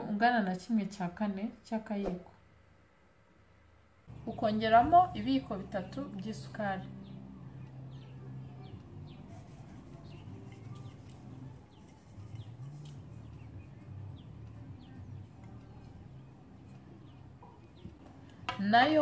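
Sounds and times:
low steady hum: 2.4 - 19.0
small birds chirping: 4.1 - 18.5.

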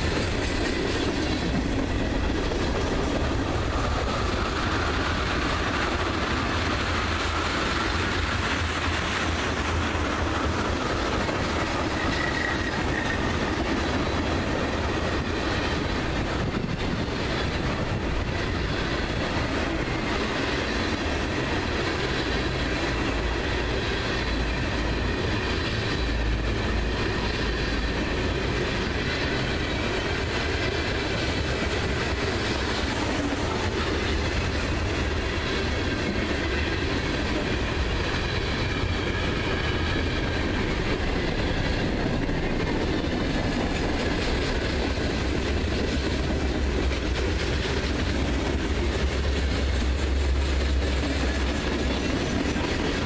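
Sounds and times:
freight train rumbling past: 0.0 - 53.0
steel wheels clattering on rails: 0.0 - 53.0
high wheel squeal: 11.8 - 13.4.

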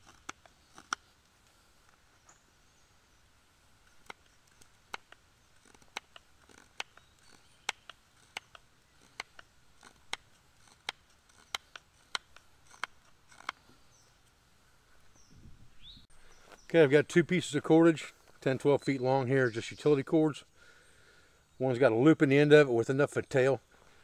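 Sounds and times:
knife carving wood clicks: 0.0 - 1.3, 3.8 - 13.7.

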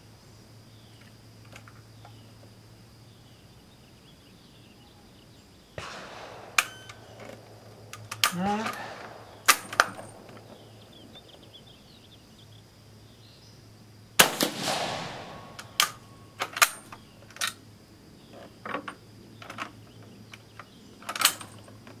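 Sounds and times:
rifle shot with echo: 5.8 - 11.6, 14.2 - 17.1
bolt action clicking: 6.3 - 10.6, 15.6 - 17.6.

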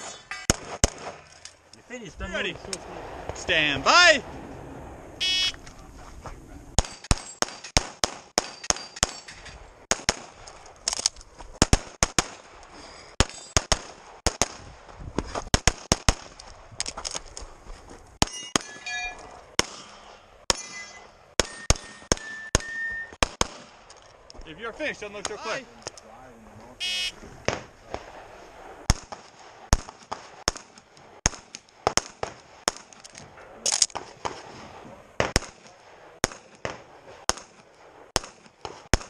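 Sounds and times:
rapid pistol fire: 0.5 - 1.2, 6.8 - 9.2, 9.8 - 10.4, 11.6 - 12.5, 13.2 - 14.8, 15.5 - 16.4, 23.2 - 23.8, 28.8 - 32.9, 35.2 - 39.0.

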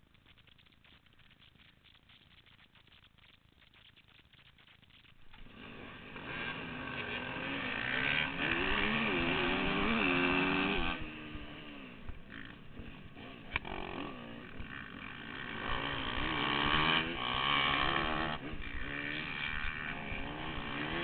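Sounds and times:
dirt bike engines revving: 5.4 - 21.0.

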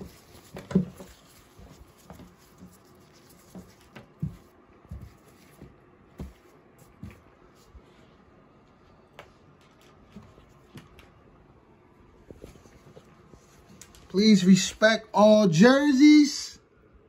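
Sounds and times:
soft handling bumps: 0.0 - 7.7
faint fabric rustles: 0.0 - 11.4, 12.0 - 14.2.

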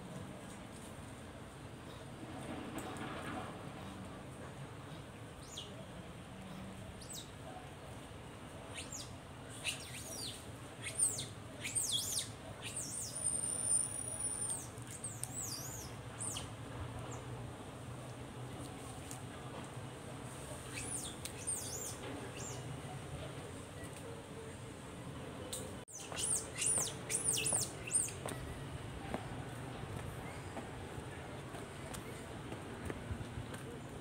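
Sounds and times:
birds chirping and whistling: 25.9 - 28.2.

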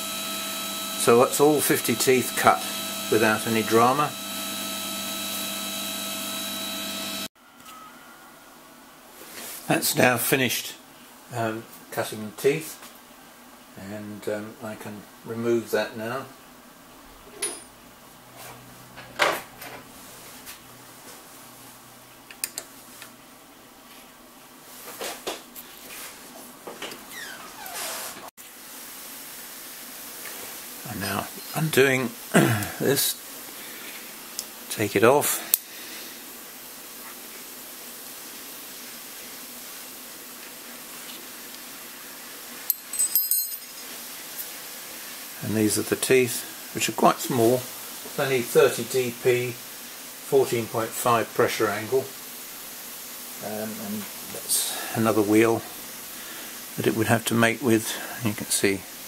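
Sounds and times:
faint steady hiss: 7.3 - 59.0
light metallic clinks: 42.7 - 43.9.

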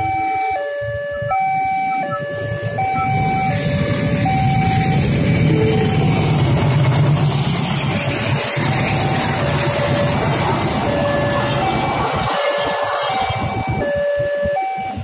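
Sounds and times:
level crossing two-tone alarm: 0.0 - 5.7, 8.9 - 15.0
passing train rumble: 0.0 - 15.0.

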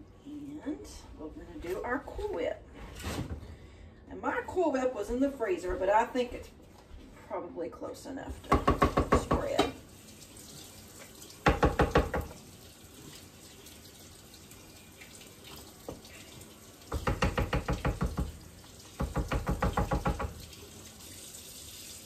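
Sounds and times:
running water: 8.3 - 22.0.

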